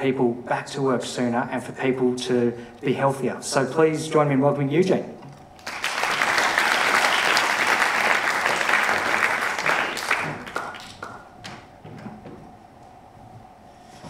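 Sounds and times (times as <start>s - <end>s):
audience applauding: 5.6s - 11.6s.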